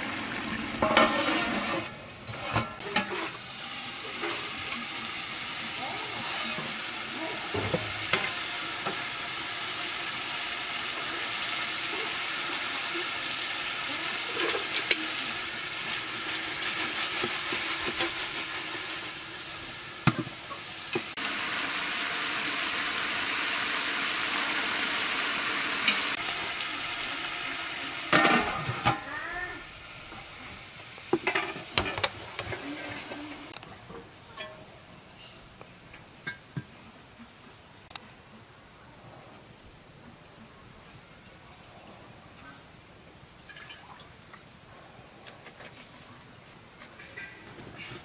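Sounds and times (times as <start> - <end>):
curry sizzling in a pot: 0.0 - 33.6
metal lid clattering: 0.8 - 3.4.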